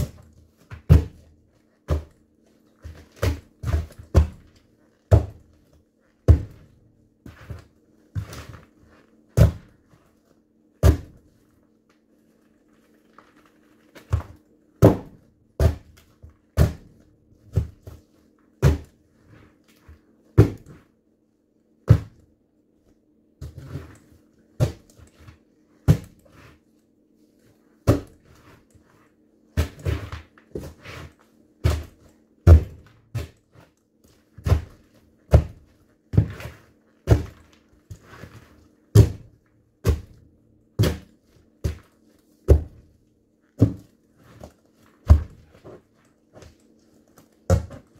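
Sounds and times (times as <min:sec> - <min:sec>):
boots stomping on pumpkin: 0:00.0 - 0:02.2, 0:02.8 - 0:05.6, 0:06.2 - 0:07.6, 0:09.4 - 0:09.8, 0:10.8 - 0:11.2, 0:14.0 - 0:18.0, 0:31.6 - 0:33.4, 0:34.4 - 0:38.0, 0:38.9 - 0:40.2, 0:42.5 - 0:42.9, 0:43.6 - 0:45.7, 0:47.5 - 0:47.9.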